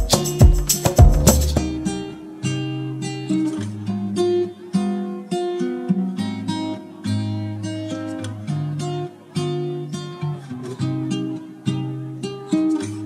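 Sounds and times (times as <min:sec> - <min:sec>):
strummed acoustic guitar: 0:00.0 - 0:13.0.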